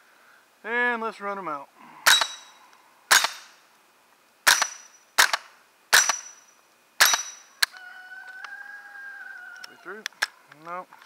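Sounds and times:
rifle shots: 2.1 - 2.5, 3.1 - 3.6, 4.4 - 6.4, 7.0 - 7.4.

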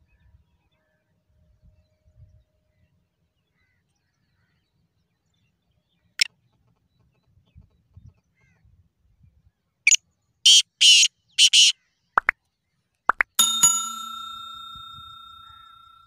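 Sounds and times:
bird harsh grating call: 10.5 - 11.7
metallic bell ring: 13.4 - 16.0.

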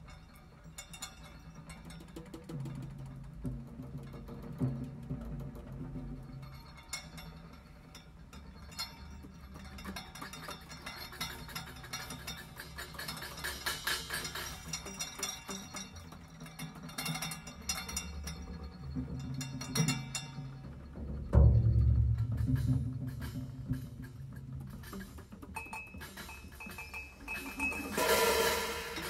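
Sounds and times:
quiet percussive music: 0.0 - 29.0.

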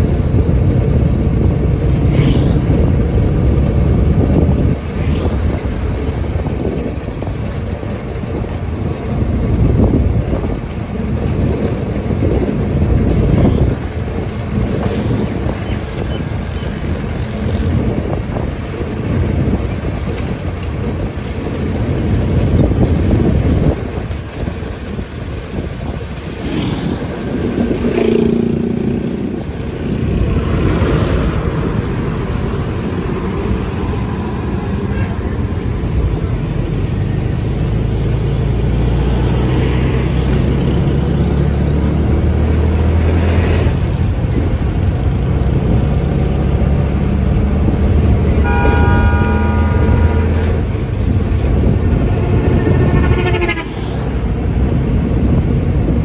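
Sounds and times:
bus passing: 0.0 - 56.0
low engine hum: 0.0 - 56.0
motorcycles passing: 0.0 - 56.0
truck passing: 0.0 - 56.0
vehicle engine and road rumble: 0.0 - 56.0
short horn sound: 48.4 - 50.7, 52.2 - 53.8.

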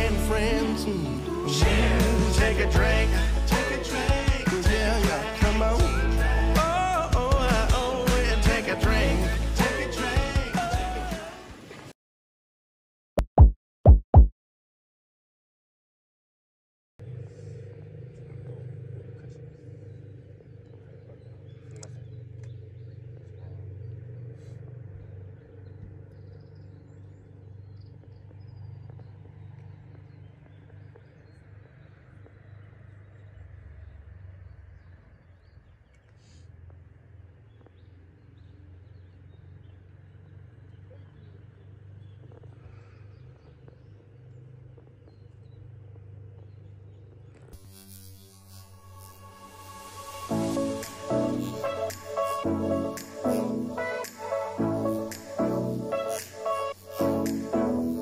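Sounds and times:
low steady rumble: 17.0 - 31.2
low engine hum: 17.0 - 47.5
bird chirps: 19.2 - 36.5.

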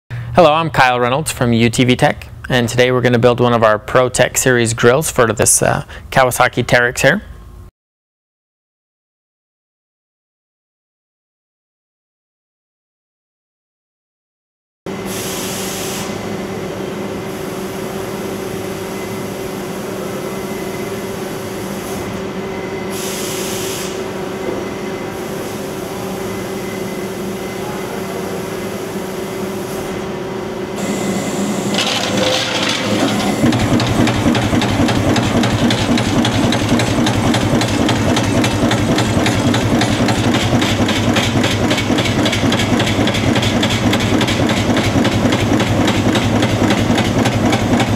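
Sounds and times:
laser cutter humming: 16.1 - 43.4
brief hisses: 22.9 - 24.1
punch press clattering: 31.7 - 47.9.

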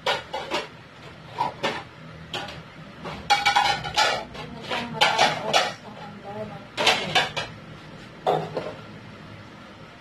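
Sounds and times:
dishes and cutlery clattering: 0.0 - 0.7, 1.3 - 6.1, 6.8 - 7.6, 8.2 - 8.8.

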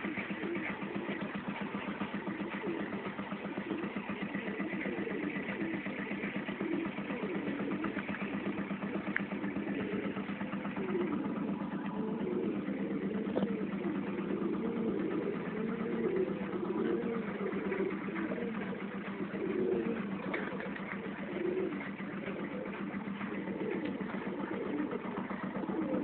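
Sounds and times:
low mechanical hum: 0.0 - 26.0
pigeons cooing: 0.0 - 26.0.

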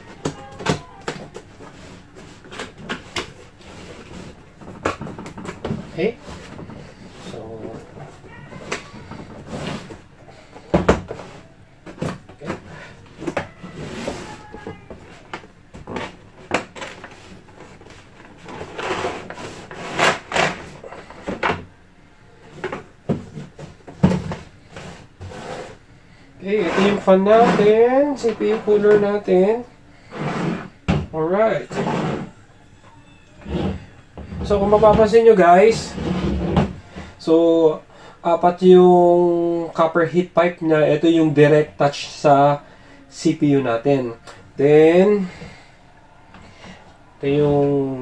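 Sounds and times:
cardboard scraping and rubbing: 0.0 - 10.1, 11.0 - 21.1, 23.3 - 25.8, 26.5 - 29.2, 30.0 - 30.8, 31.6 - 32.4, 35.7 - 37.2.

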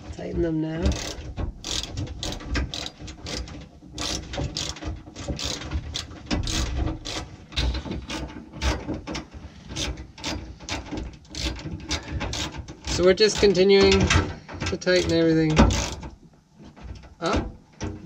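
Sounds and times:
hand ratchet clicking: 0.9 - 16.2.

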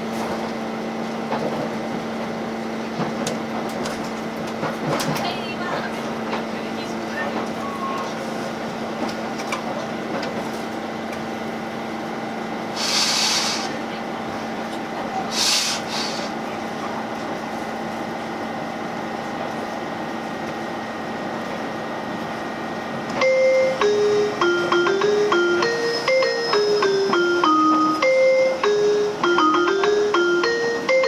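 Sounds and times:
electric train running rumble: 0.0 - 31.0
short hisses: 12.8 - 13.7, 15.3 - 16.3.

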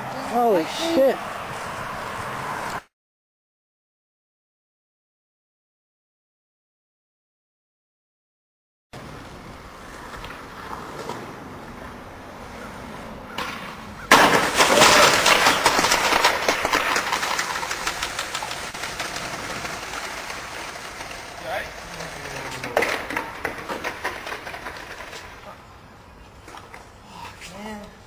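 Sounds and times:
skateboard rolling on pavement: 0.0 - 2.8, 9.0 - 27.0
skateboard clattering: 13.3 - 25.4
loud crash: 14.1 - 21.6.

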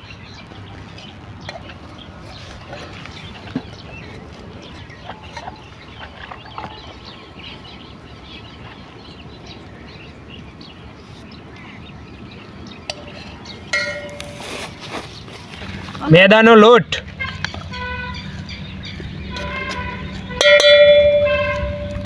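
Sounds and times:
birds calling: 0.0 - 22.0
steady outdoor noise: 0.0 - 22.0
chickens clucking: 17.0 - 22.0.

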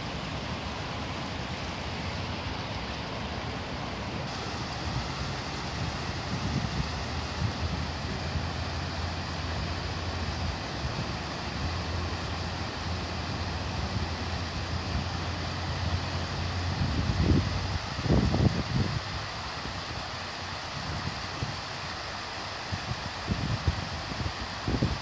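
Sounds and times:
fountain water splashing: 0.0 - 25.0
wind buffeting microphone: 4.4 - 9.0.

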